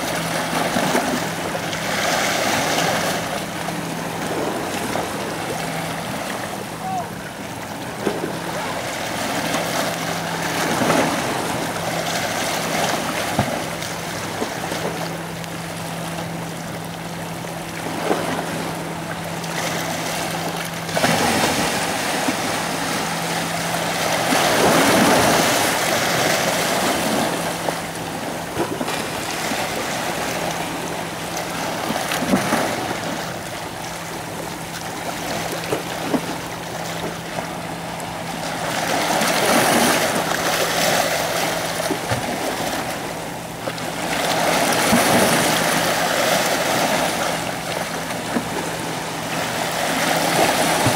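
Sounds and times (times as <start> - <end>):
steady low hum: 0.0 - 50.9
water lapping over rocks: 0.0 - 50.9.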